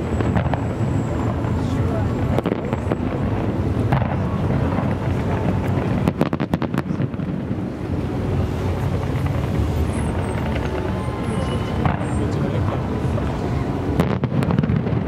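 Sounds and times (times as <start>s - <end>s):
fireworks bursts rumbling: 0.0s - 15.0s
sharp firework cracks: 3.8s - 7.5s, 14.0s - 15.0s.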